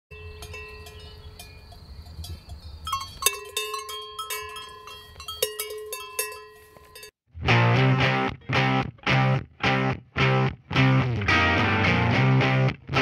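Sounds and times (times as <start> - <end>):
cowbells clanking: 0.1 - 7.2.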